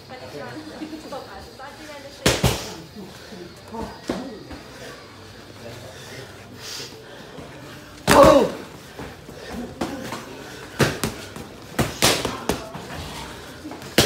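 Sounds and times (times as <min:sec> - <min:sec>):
boxing gloves smacking: 0:10.8 - 0:12.7.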